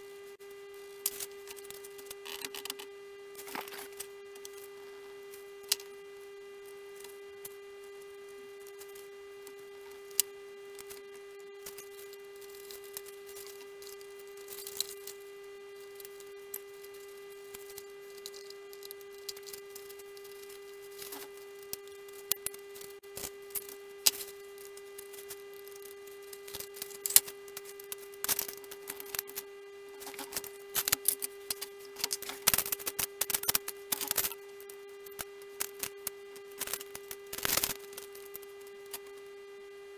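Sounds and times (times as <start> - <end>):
steady electrical hum: 0.0 - 39.9
hands handling small parts and tools: 3.4 - 4.6.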